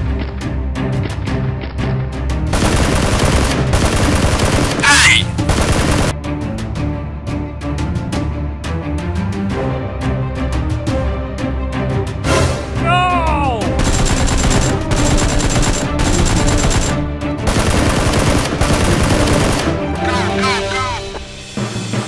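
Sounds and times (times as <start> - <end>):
background music: 0.0 - 22.0
automatic gunfire: 2.5 - 6.1, 13.8 - 19.8.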